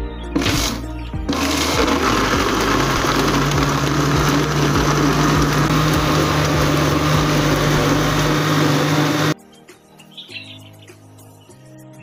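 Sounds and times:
blender whirring: 0.4s - 9.4s.

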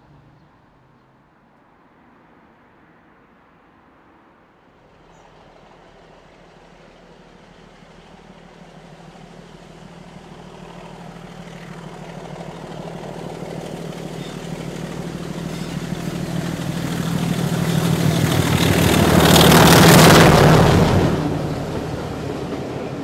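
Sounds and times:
diesel locomotive engine drone: 4.6s - 23.0s.

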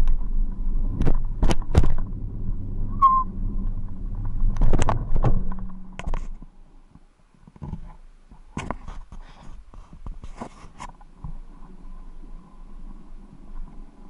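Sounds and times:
low rumble: 0.0s - 6.9s
short high squeak: 2.9s - 3.3s
knocks and clatters: 3.6s - 6.5s.

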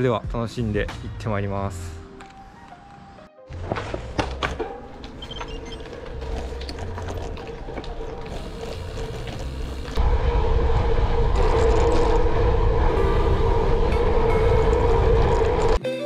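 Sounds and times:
bike tyre rolling noise: 2.5s - 15.8s
tyre and wind rumble: 3.5s - 15.8s.

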